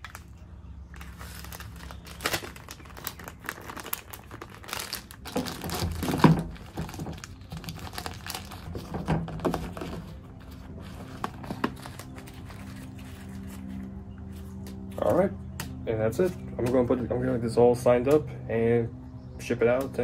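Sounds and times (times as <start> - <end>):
plastic bag crinkling: 0.0 - 13.9.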